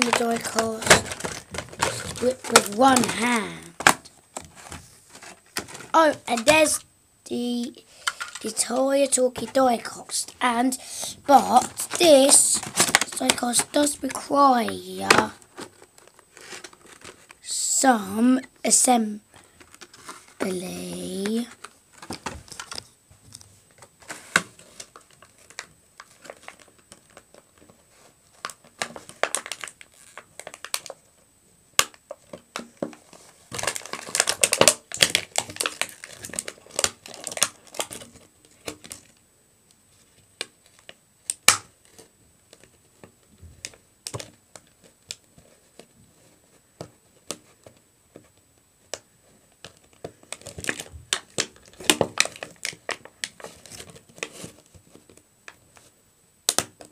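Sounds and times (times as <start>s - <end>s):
plastic packaging crinkling: 0.0s - 6.8s, 7.6s - 17.5s, 19.3s - 31.2s, 31.8s - 39.2s, 49.6s - 55.9s.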